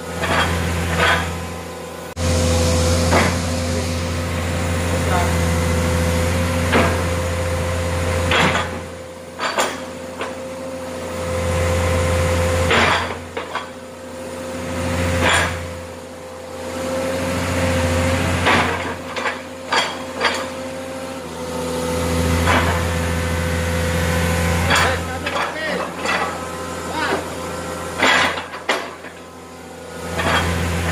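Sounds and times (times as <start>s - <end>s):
excavator diesel engine running: 0.0s - 30.9s
metallic clanks of grapple: 30.1s - 30.6s.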